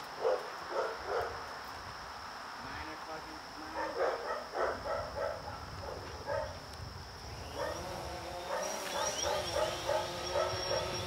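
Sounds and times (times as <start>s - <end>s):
drone motors whining: 7.2s - 11.0s
dogs yipping and whimpering: 8.5s - 11.0s.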